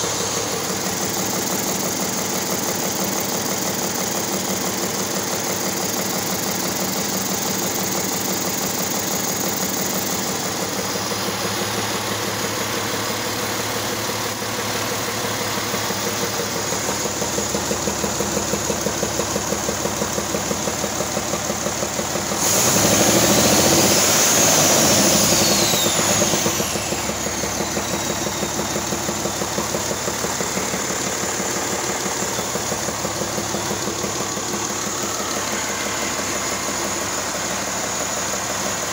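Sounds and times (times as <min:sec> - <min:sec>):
diesel engine idling and revving: 0:00.0 - 0:38.9
turbo whine: 0:22.4 - 0:38.9.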